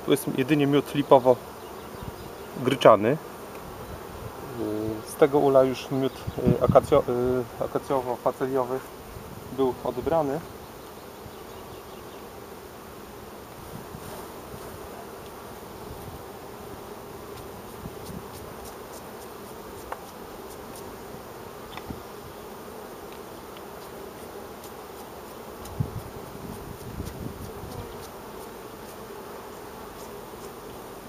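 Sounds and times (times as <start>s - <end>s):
bees buzzing: 0.0s - 31.0s.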